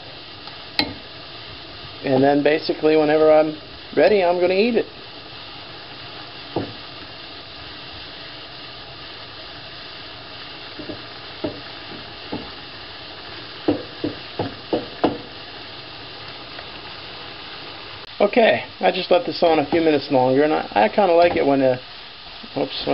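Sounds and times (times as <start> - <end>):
food sizzling in frying pan: 0.0 - 22.9
spatula knocking against pan: 10.8 - 12.5, 13.7 - 15.3.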